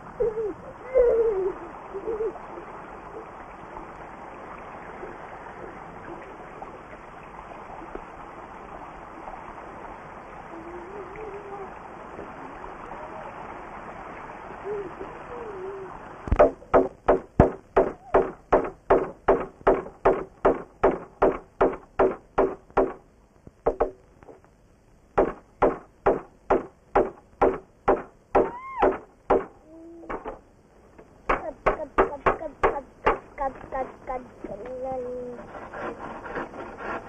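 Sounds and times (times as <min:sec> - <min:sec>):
rapid knocking blows with ringing: 0:16.4 - 0:23.0, 0:23.6 - 0:24.0, 0:25.2 - 0:29.5.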